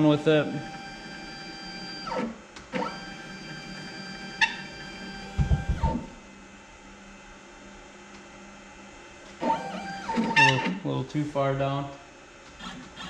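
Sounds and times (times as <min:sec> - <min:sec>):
stepper motors whining: 0:09.4 - 0:10.8.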